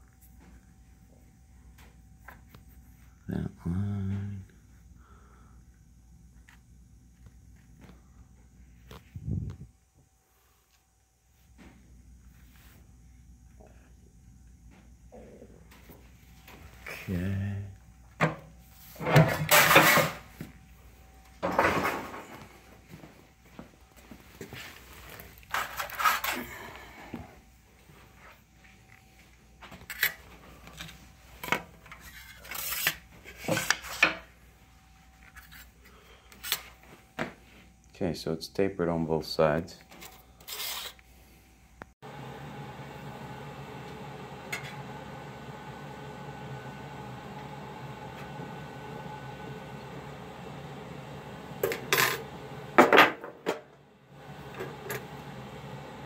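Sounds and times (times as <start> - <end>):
steady low hum: 0.0 - 52.8
metal scrape: 25.5 - 26.4, 40.0 - 41.0.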